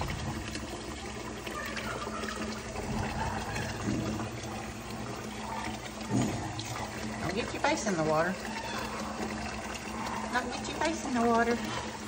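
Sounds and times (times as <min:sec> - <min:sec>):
faucet running into sink: 0:00.0 - 0:12.0.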